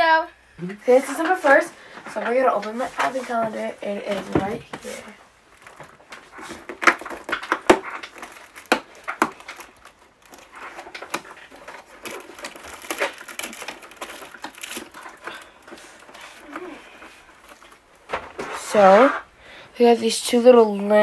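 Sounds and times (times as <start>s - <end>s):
cardboard crinkling and rustling: 1.1s - 19.3s
cardboard snapping: 5.7s - 16.6s.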